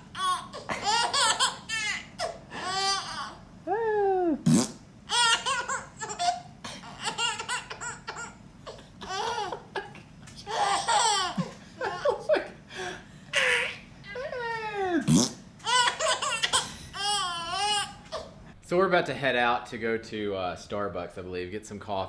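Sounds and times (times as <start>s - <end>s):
baby laughing: 0.0s - 4.4s, 5.1s - 12.6s, 13.3s - 13.8s, 15.0s - 18.3s.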